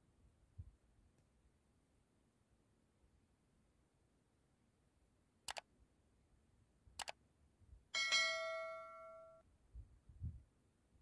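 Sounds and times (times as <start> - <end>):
metallic bell-like strike: 8.0 - 9.4.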